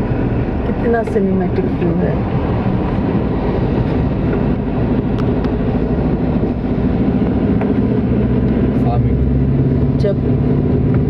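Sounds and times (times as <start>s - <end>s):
car engine hum: 0.0s - 11.0s
road noise: 0.0s - 11.0s.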